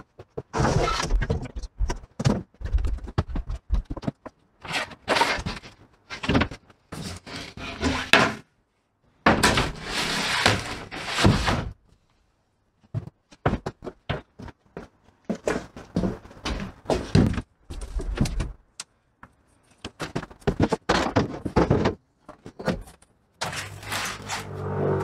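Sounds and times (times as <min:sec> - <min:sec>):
wooden sheet knocking and scraping: 0:09.2 - 0:11.8, 0:20.0 - 0:22.8.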